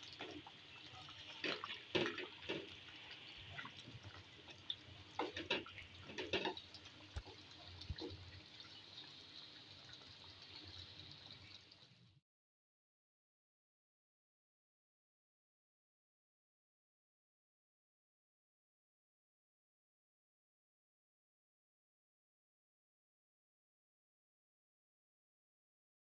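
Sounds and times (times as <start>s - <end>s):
stew sizzling and bubbling: 0.0s - 12.2s.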